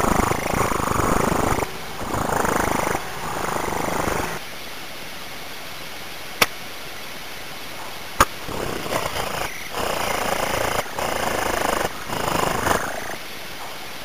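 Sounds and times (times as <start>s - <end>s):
birds rustling in a nest: 0.0s - 4.4s.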